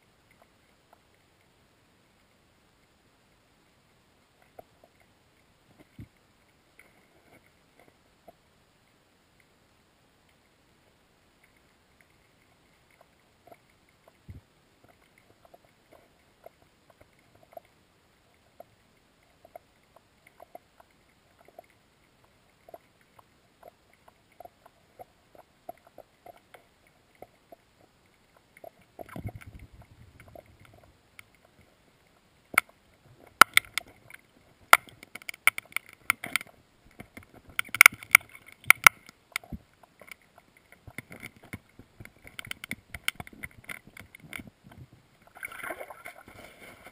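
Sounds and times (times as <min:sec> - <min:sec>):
faint ticks under ice: 0:11.2 - 0:46.9.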